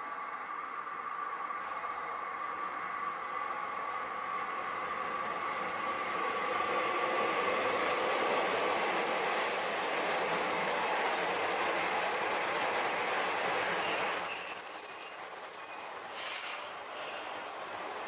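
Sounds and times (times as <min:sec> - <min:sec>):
train running noise: 0:00.0 - 0:18.0
wheels and brakes squealing: 0:13.7 - 0:17.8.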